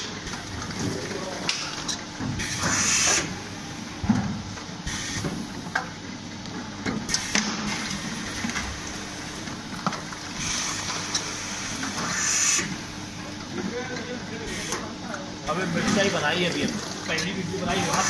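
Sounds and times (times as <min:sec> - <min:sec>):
filling machine humming: 0:07.1 - 0:18.0
hiss of jars filling: 0:10.4 - 0:12.8.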